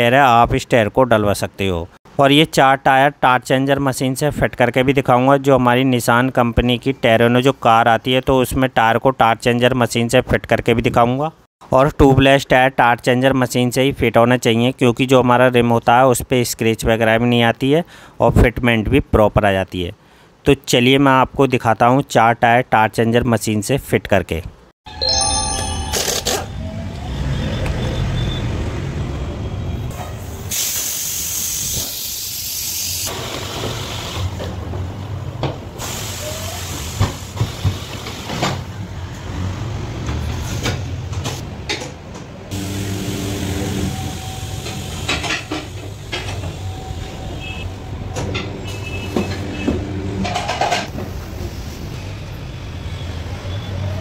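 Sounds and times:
compressed air hissing: 0:30.4 - 0:34.0, 0:35.8 - 0:38.0.

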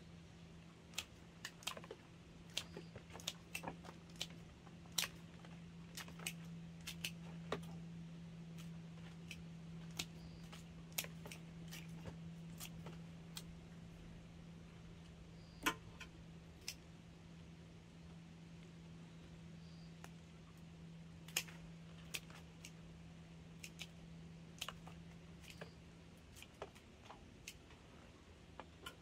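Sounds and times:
low steady hum: 0:00.0 - 0:29.0
pruning shears snipping stems: 0:00.9 - 0:07.8, 0:08.5 - 0:13.5, 0:21.2 - 0:22.8, 0:23.5 - 0:27.6.

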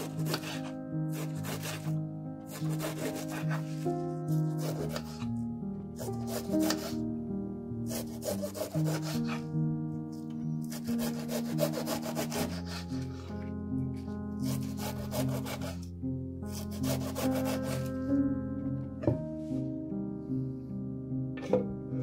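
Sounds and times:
knife slicing cabbage on board: 0:00.0 - 0:01.9, 0:02.5 - 0:05.3, 0:06.0 - 0:07.0, 0:07.9 - 0:09.4, 0:10.6 - 0:13.3, 0:14.4 - 0:15.9, 0:16.5 - 0:18.0
background music: 0:00.0 - 0:22.0.

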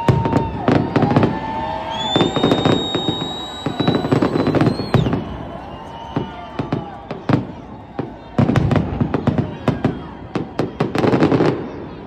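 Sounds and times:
high steady whistle: 0:00.0 - 0:07.1
fireworks bangs and crackles: 0:00.0 - 0:12.0.

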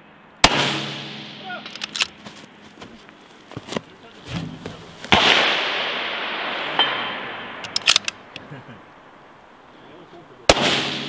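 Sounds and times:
rifle shot with long echo: 0:00.4 - 0:01.7, 0:05.1 - 0:08.3, 0:10.5 - 0:11.0
quick clicks: 0:07.6 - 0:08.2.

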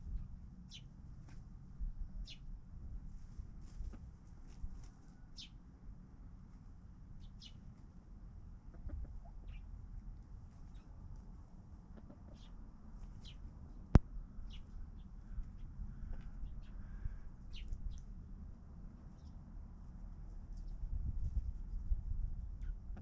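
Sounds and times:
chickens calling: 0:08.7 - 0:09.7, 0:11.8 - 0:13.4.

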